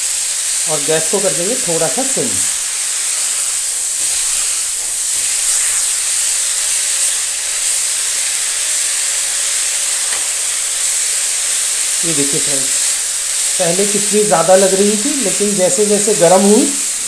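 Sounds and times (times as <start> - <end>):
leaves sizzling in oil: 0.0 - 17.0.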